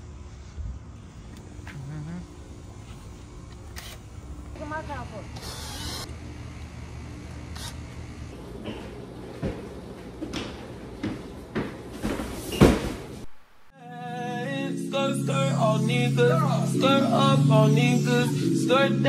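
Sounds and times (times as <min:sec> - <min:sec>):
low room hum: 0:00.0 - 0:13.7.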